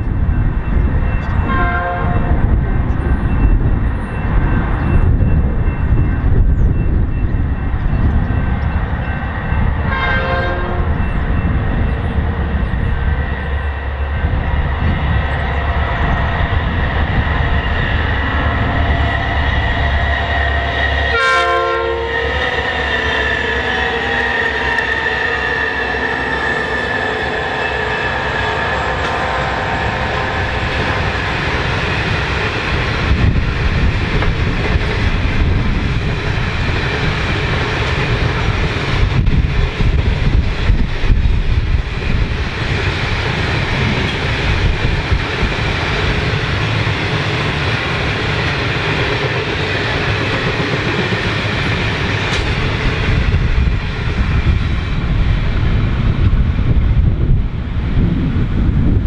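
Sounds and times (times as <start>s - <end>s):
diesel locomotive engine rumble: 0.0s - 59.0s
train horn chord: 1.5s - 2.4s, 9.9s - 11.0s, 21.1s - 22.7s.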